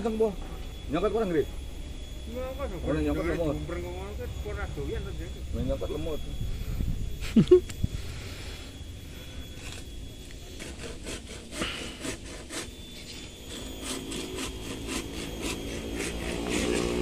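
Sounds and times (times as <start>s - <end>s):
hand saw cutting branch: 10.4s - 17.0s
engine hum: 12.7s - 17.0s.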